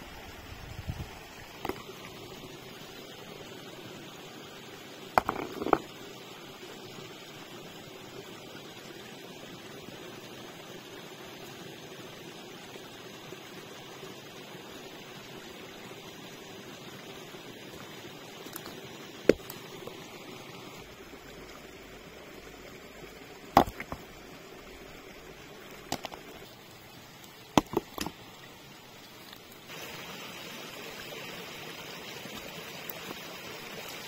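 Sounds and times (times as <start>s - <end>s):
sharp knocks of hard objects: 5.2s - 5.9s, 27.6s - 28.1s.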